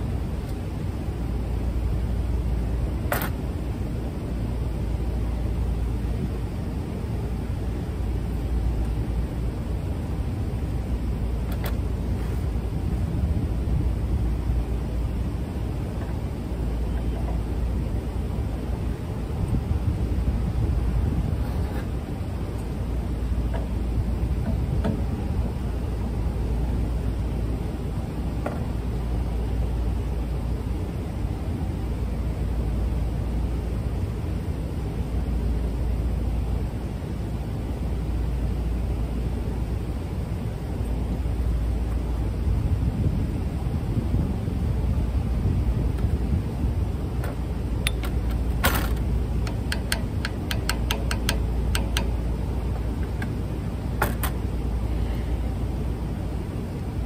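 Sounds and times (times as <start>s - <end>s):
wind rumble on microphone: 0.0s - 57.0s
hammer tapping metal: 49.4s - 52.2s.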